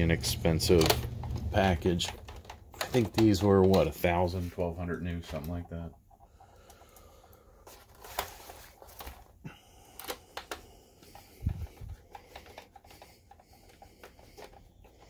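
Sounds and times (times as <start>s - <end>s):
plastic case handling: 0.5s - 4.2s, 7.6s - 15.0s.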